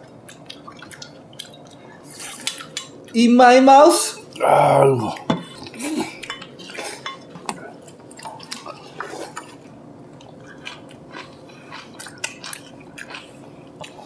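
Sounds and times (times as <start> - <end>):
utensils clinking against dishes: 5.3 - 7.6.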